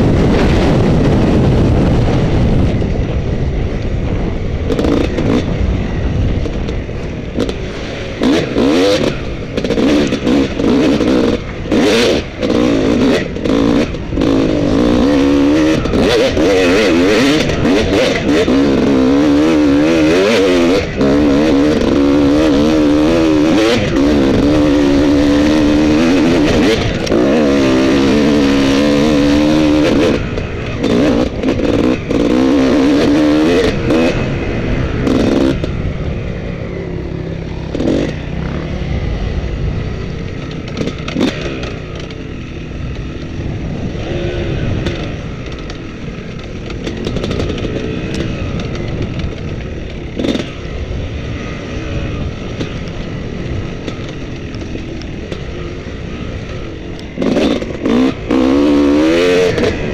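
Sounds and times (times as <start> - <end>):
motorcycle engine revving: 0.0 - 59.9
knocks and clatter from bike: 4.6 - 19.4, 40.1 - 43.4, 44.0 - 59.9.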